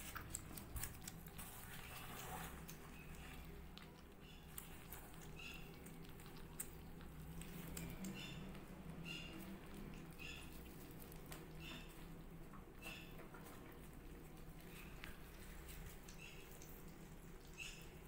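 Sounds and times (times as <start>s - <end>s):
kittens crunching kibble: 0.0s - 18.0s
kittens squeaking: 7.8s - 10.9s.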